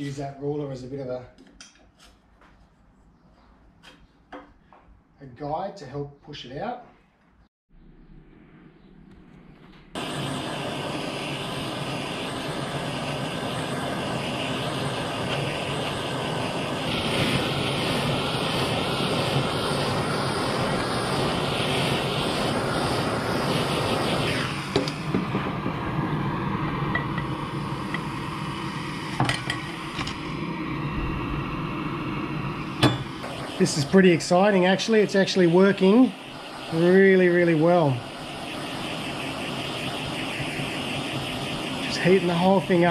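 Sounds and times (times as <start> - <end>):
gas torch flame rushing: 9.9 - 42.9.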